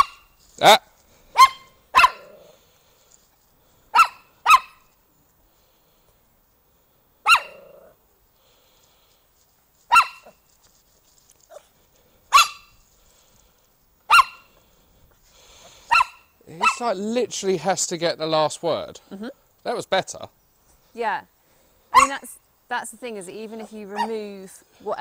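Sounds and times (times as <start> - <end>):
small dog yapping: 0.0 - 0.3, 1.4 - 2.6, 4.0 - 4.9, 7.3 - 7.9, 9.9 - 10.4, 12.3 - 12.7, 14.1 - 14.5, 15.9 - 16.8, 21.9 - 22.3.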